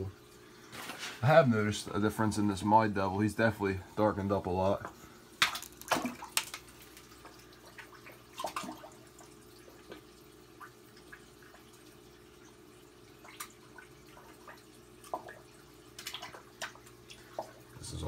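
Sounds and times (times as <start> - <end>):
low equipment hum: 0.0 - 18.0
water drips and small splashes: 4.7 - 18.0.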